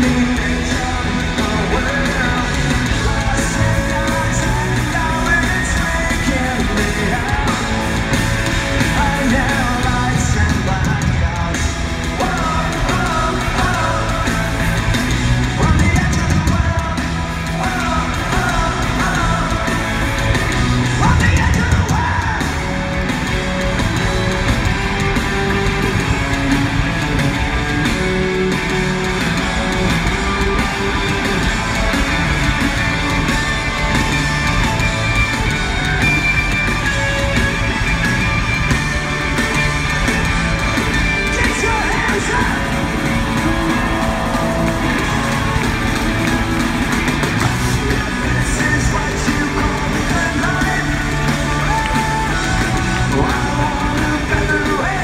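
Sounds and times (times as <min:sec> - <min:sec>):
drums: 0:00.0 - 0:55.0
electric guitars: 0:00.0 - 0:55.0
person singing: 0:47.5 - 0:55.0.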